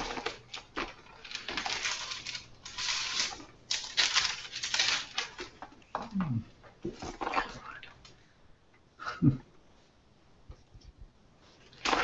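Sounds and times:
thin pages flipping and rustling: 0.0 - 5.8.

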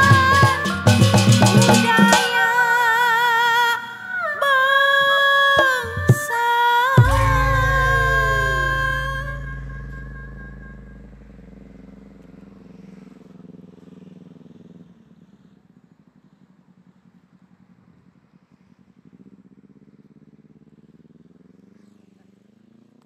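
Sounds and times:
vehicle engine rumbling: 0.0 - 3.0, 5.6 - 23.0
held sung note: 0.0 - 11.7.

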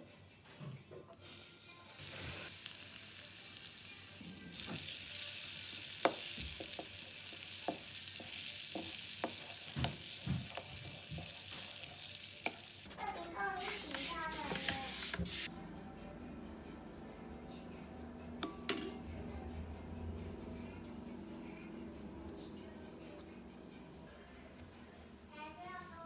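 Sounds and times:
hot oil sizzling: 1.3 - 12.9
metal spoon clinking on bowl: 18.4 - 19.0.

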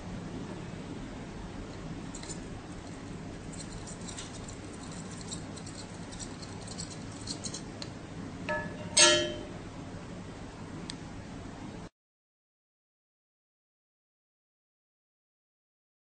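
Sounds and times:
steady low hum: 0.0 - 11.9
bell-like musical notes: 8.5 - 9.6.

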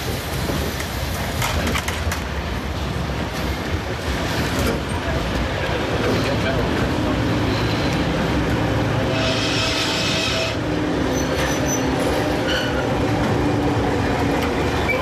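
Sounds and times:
diesel locomotive engine droning: 0.0 - 15.0
high squeal: 11.1 - 12.9.

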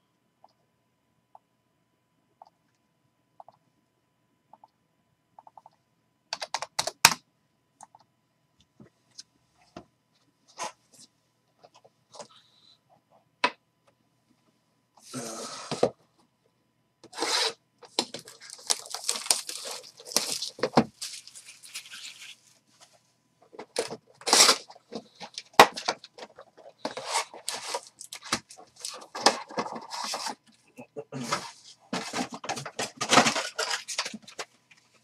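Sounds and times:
wrap and cardboard tearing: 17.1 - 22.4, 24.2 - 24.7
foil packs rustling: 17.2 - 22.5, 23.7 - 30.4, 31.2 - 34.4.

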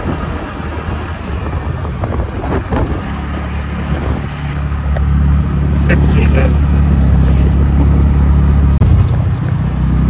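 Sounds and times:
wind buffeting microphone: 0.0 - 5.8.

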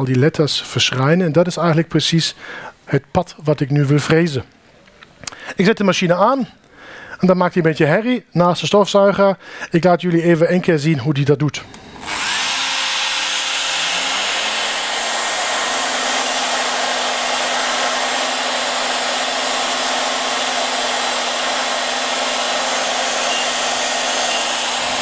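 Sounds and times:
router motor hum: 11.6 - 25.0
dust extractor running: 11.7 - 25.0.

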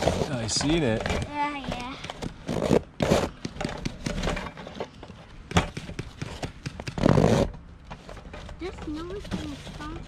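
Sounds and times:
toy trucks scraping snow: 0.0 - 1.0, 7.0 - 7.5.

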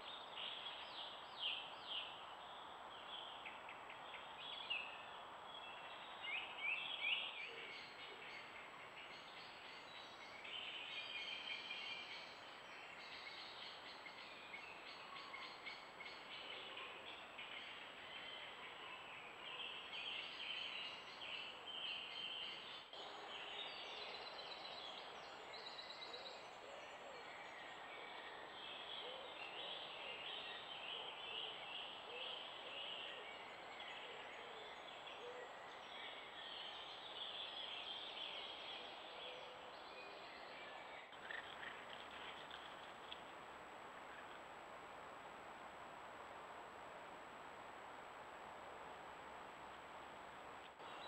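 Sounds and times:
microphone hiss: 24.2 - 51.0
birds singing and calling: 28.7 - 42.9.

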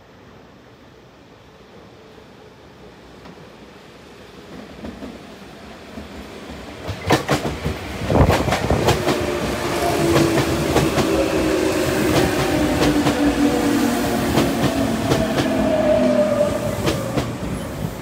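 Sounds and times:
train wheels clacking over rail joints: 6.8 - 9.3
train running gear whine: 6.9 - 18.0.

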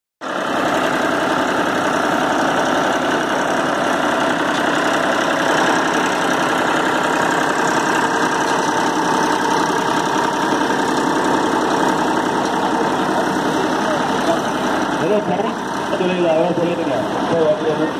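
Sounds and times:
tractor diesel engine running: 0.2 - 17.9.

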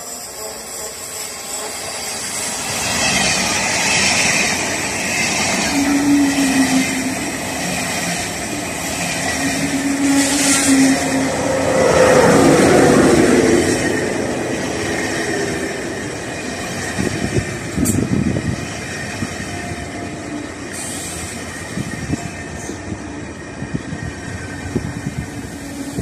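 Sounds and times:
train wheels rumbling on rails: 0.0 - 26.0
rushing air: 4.4 - 18.6.

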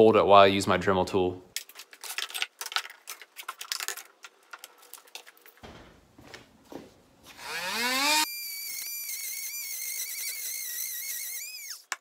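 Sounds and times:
small parts rattling in plastic case: 1.6 - 5.6
rotary tool motor whine: 7.4 - 11.9.

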